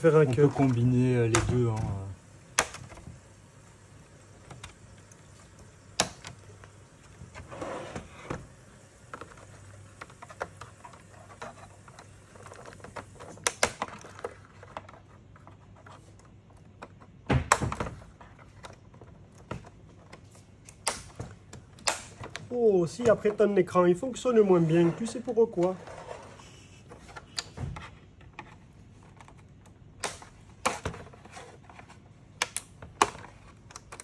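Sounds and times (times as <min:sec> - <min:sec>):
plastic scraping: 0:00.1 - 0:02.0, 0:06.0 - 0:17.2, 0:24.2 - 0:32.2
plastic clips snapping loose: 0:02.6 - 0:03.0, 0:13.4 - 0:14.0, 0:20.7 - 0:22.5, 0:30.0 - 0:30.9, 0:32.4 - 0:34.0.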